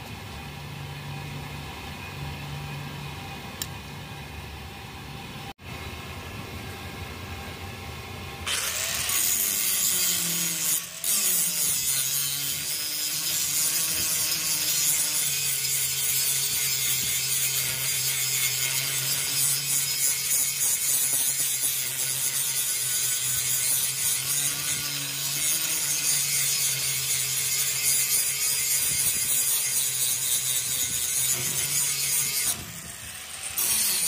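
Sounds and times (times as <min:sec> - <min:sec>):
electric grinder grinding steel: 0:08.4 - 0:34.0.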